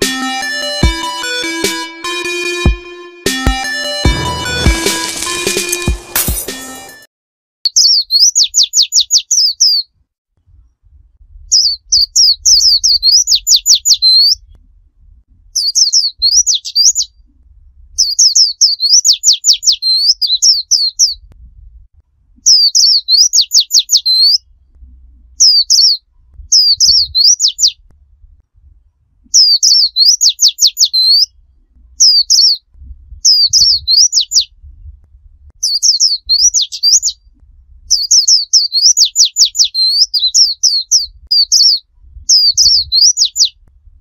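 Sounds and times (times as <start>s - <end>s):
bird singing rapid high notes: 7.7s - 9.8s, 11.5s - 14.5s, 15.6s - 17.2s, 18.0s - 21.2s, 22.4s - 24.5s, 25.4s - 27.8s, 29.3s - 31.3s, 32.0s - 32.6s, 33.2s - 34.5s, 35.6s - 37.2s, 37.9s - 43.6s.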